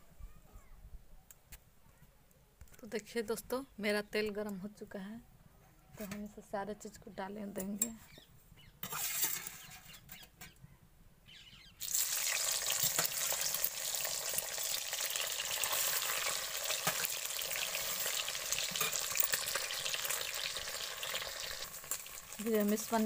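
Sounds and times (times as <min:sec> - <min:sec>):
food sizzling in hot oil: 0:11.8 - 0:23.0.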